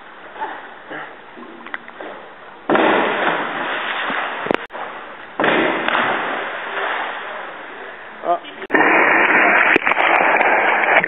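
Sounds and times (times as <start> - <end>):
divers splashing into pool: 2.7 - 8.0, 8.7 - 11.0.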